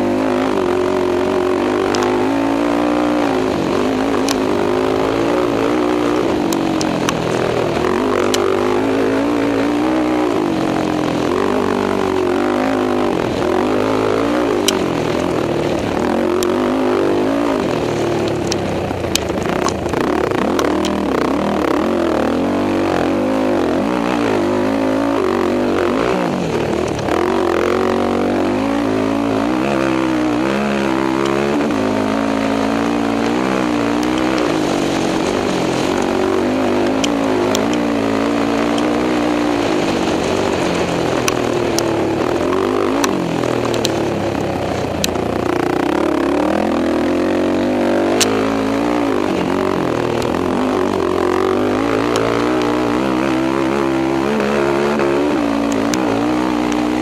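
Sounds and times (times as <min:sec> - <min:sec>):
quad engine revving: 0:00.0 - 0:57.0
sharp clicks: 0:17.8 - 0:21.3.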